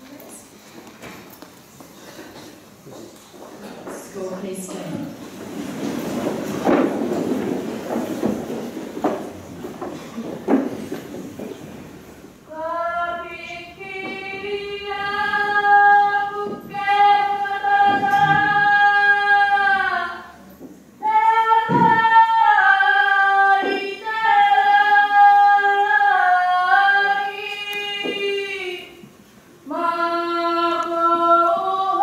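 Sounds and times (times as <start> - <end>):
woman singing unaccompanied: 12.4 - 20.4, 21.0 - 32.0.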